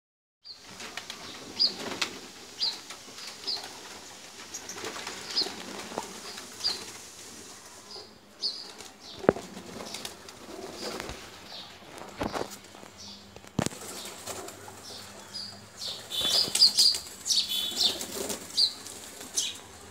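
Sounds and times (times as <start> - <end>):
pigeon wings flapping: 0.6 - 7.3, 8.7 - 12.8, 13.4 - 14.9, 16.0 - 19.4
pigeons cooing: 3.5 - 12.8, 13.6 - 19.9.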